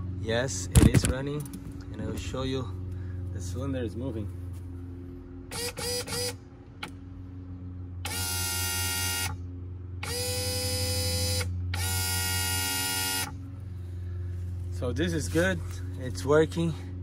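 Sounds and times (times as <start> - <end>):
electric pump motor whining: 5.5 - 7.0, 8.0 - 14.2.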